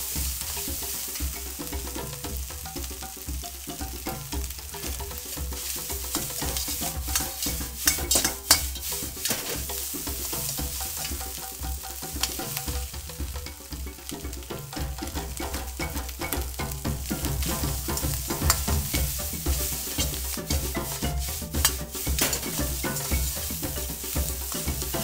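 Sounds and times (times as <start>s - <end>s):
ladle clanking on wok: 0.0s - 25.0s
rice sizzling in a wok: 0.0s - 25.0s
metal ladle scraping a wok: 5.1s - 11.6s, 12.2s - 12.9s, 16.7s - 25.0s.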